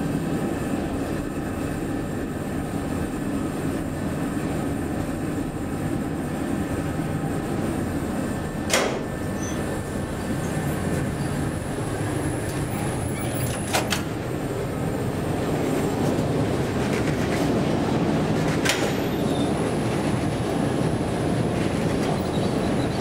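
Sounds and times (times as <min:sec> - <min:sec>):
metro train rumbling: 0:00.0 - 0:23.0.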